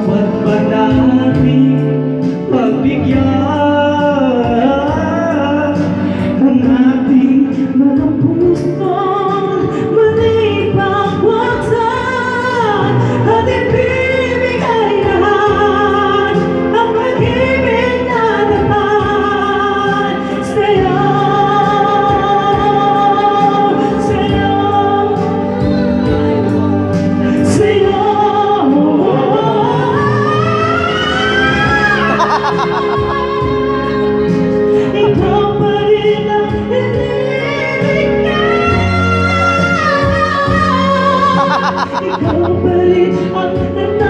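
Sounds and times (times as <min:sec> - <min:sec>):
recorded backing track: 0:00.0 - 0:44.0
people singing into a microphone: 0:09.7 - 0:44.0.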